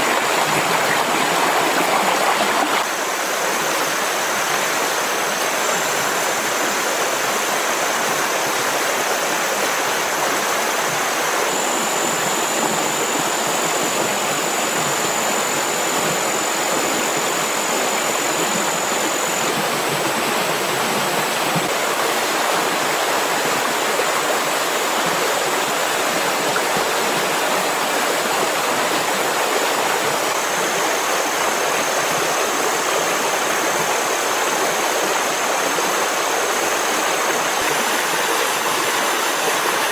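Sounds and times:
flowing water rushing: 0:00.0 - 0:39.9
thin high steady tones: 0:09.9 - 0:21.9.

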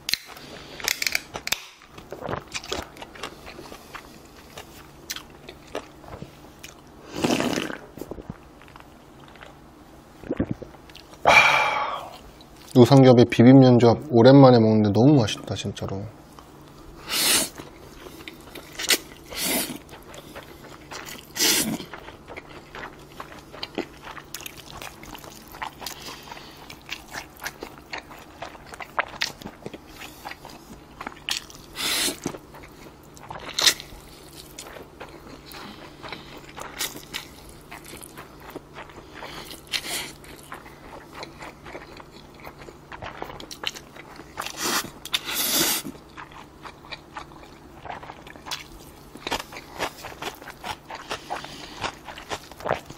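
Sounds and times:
person chewing: 0:00.0 - 0:09.6, 0:10.2 - 0:12.8, 0:16.3 - 0:52.9
person slurping noodles: 0:07.1 - 0:07.8, 0:17.0 - 0:17.6, 0:19.3 - 0:19.8, 0:21.4 - 0:21.9, 0:31.8 - 0:32.2, 0:44.5 - 0:45.9.

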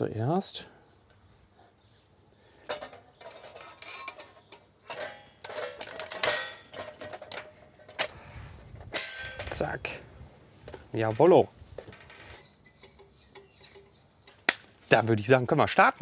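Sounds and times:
metal grill plates clinking: 0:02.6 - 0:08.2, 0:08.8 - 0:10.0, 0:11.9 - 0:14.5.

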